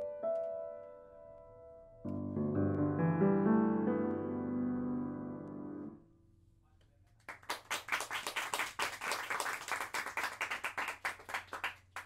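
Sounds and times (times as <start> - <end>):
audience applauding: 7.2 - 12.0.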